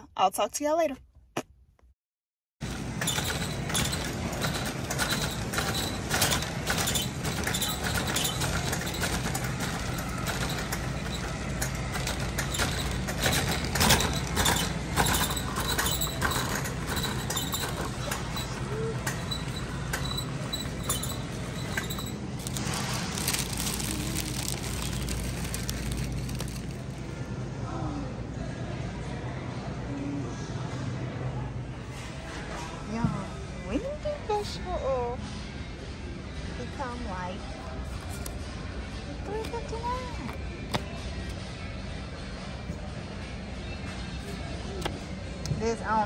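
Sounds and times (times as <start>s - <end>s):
shopping cart rolling and rattling: 2.6s - 27.2s.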